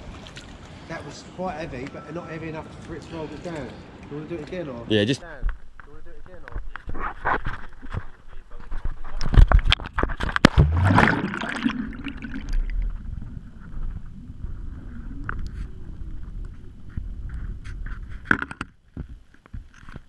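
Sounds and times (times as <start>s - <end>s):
underwater clicks and gurgles: 6.6s - 18.8s
splash into water: 10.2s - 12.9s
muffled underwater rumble: 10.5s - 18.1s.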